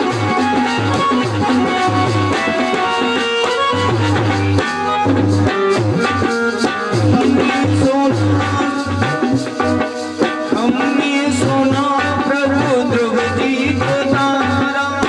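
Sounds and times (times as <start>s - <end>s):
accompanying instruments with steady beat: 0.0s - 15.0s
devotional singing into a microphone: 7.3s - 9.7s, 10.5s - 15.0s.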